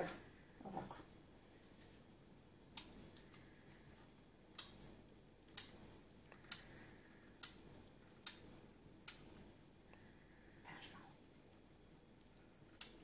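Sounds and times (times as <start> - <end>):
sharp light clicks: 2.8 - 3.0, 4.6 - 4.8, 5.5 - 5.8, 6.4 - 6.7, 7.4 - 9.4, 12.7 - 13.0.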